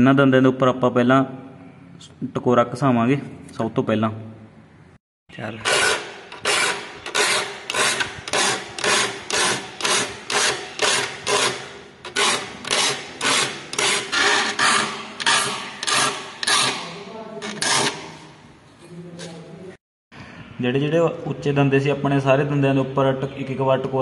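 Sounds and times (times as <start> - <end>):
file rasping on saw teeth: 5.6 - 18.2.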